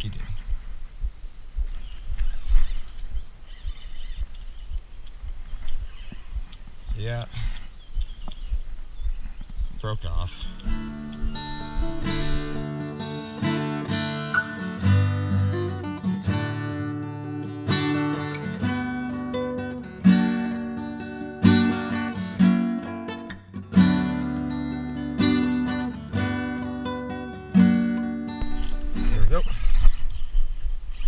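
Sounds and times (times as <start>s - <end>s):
acoustic guitar strumming chords: 10.2s - 29.6s.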